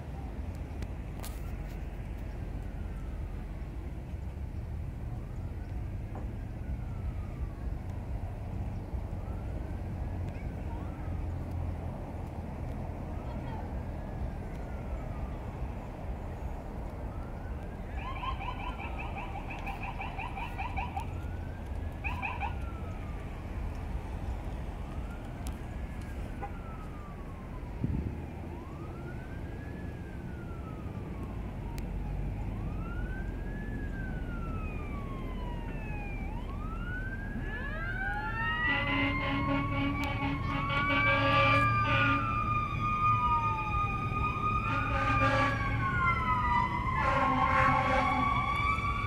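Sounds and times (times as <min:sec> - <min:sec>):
siren wailing: 0:06.5 - 0:08.5, 0:09.1 - 0:11.3, 0:13.2 - 0:49.0
rapid pulsing siren tone: 0:17.1 - 0:23.7
vehicle horn: 0:38.7 - 0:42.3, 0:44.7 - 0:45.6, 0:47.0 - 0:48.3.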